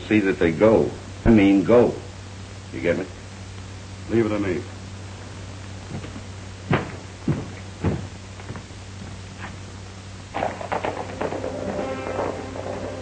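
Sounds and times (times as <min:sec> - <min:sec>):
steady low hum: 0:00.0 - 0:13.0
sharp thuds: 0:06.7 - 0:08.1
music: 0:11.0 - 0:13.0.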